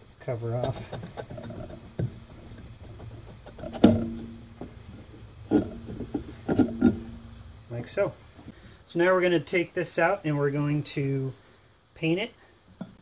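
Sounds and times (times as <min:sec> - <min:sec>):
sharp knocks on metal cover: 0:03.6 - 0:04.8.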